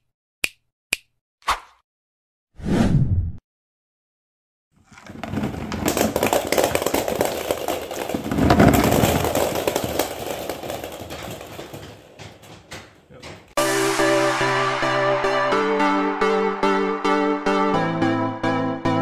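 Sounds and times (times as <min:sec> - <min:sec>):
plastic balls bouncing on wooden floor: 0:04.8 - 0:13.6.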